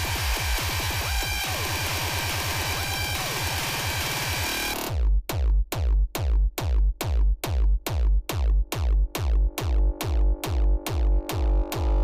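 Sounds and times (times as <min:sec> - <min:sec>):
noisy dance music build-up: 0:00.0 - 0:12.0
heavy kick drum with deep bass: 0:04.8 - 0:12.0.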